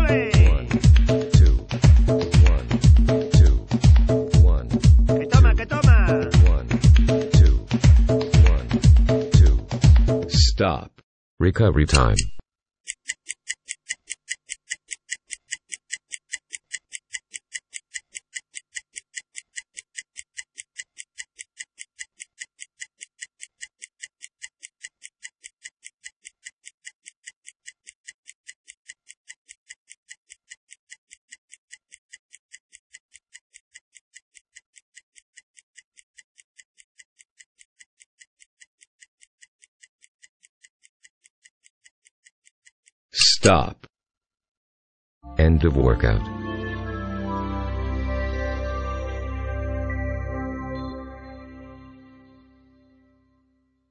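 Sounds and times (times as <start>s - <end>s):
stopwatch ticking: 0.0s - 10.3s, 12.9s - 43.6s.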